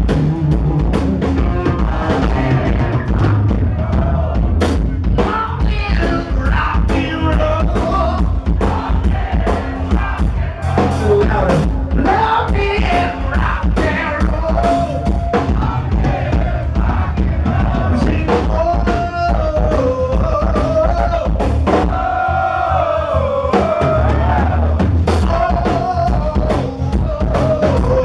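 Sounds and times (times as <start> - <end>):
bass guitar: 0.0 - 28.0
drums: 0.0 - 28.0
person singing: 25.2 - 28.0.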